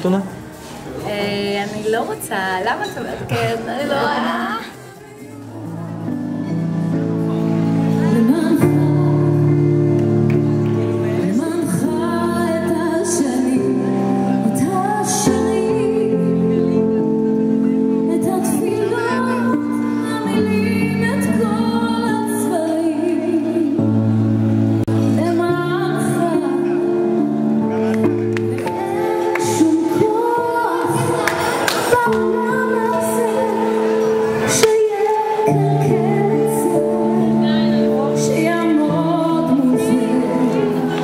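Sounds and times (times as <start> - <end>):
woman singing into a microphone: 7.9 - 10.2, 11.1 - 27.6, 28.4 - 41.0.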